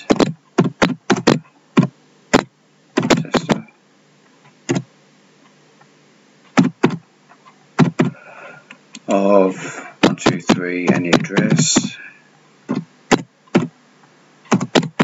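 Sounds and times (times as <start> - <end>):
keyboard keystrokes: 14.5 - 15.0.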